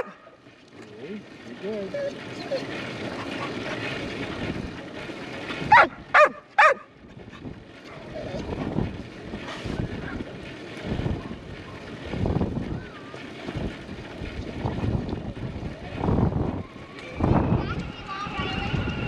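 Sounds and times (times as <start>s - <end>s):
wind noise on microphone: 1.2s - 19.0s
dog barking: 5.7s - 6.9s.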